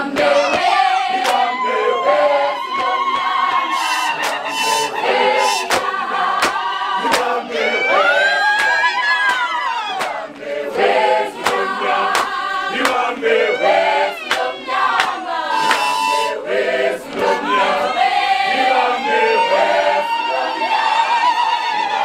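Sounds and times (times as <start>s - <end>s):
hands clapping on a beat: 0.0s - 1.6s, 2.6s - 7.5s, 8.4s - 13.3s, 14.2s - 16.2s, 17.0s - 17.4s
women singing in chorus: 0.0s - 22.0s.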